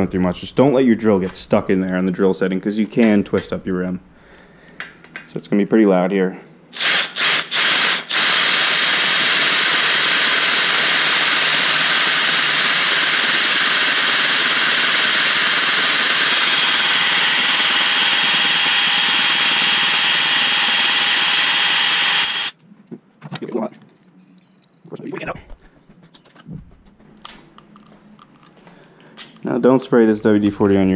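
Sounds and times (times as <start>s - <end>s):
cordless drill drilling metal: 6.8s - 22.6s
drill trigger blips: 6.8s - 22.6s
thin steady whine: 8.6s - 22.6s.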